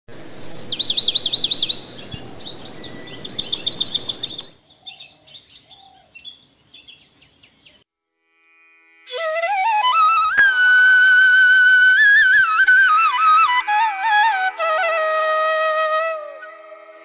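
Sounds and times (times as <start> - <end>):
steady background hiss: 0.1 - 17.0
faint bird chirps and twitters: 0.2 - 7.8
songbird singing high notes: 0.2 - 7.8.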